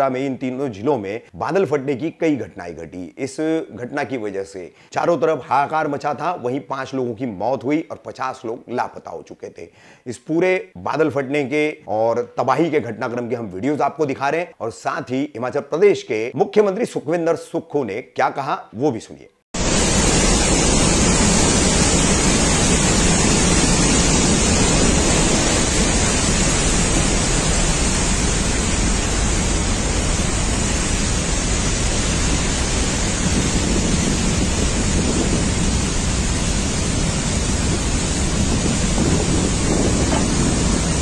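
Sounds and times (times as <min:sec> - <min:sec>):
floodwater rushing: 0:19.6 - 0:41.0.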